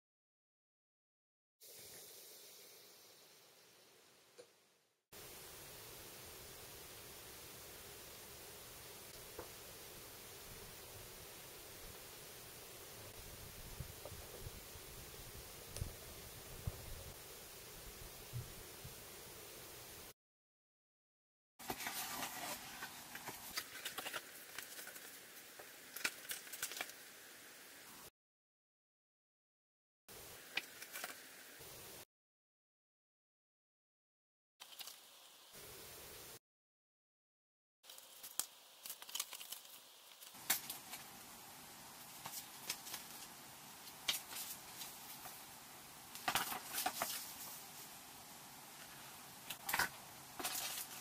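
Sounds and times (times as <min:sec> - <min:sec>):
paper rustling: 0:21.6 - 0:25.2, 0:42.0 - 0:45.4, 0:46.2 - 0:47.8, 0:49.5 - 0:51.0.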